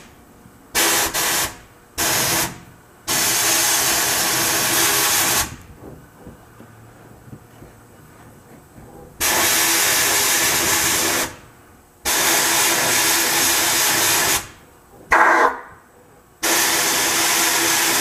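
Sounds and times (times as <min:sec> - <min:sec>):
sandblast gun blasting: 0:00.7 - 0:05.6, 0:09.2 - 0:11.4, 0:12.0 - 0:15.6, 0:16.4 - 0:18.0.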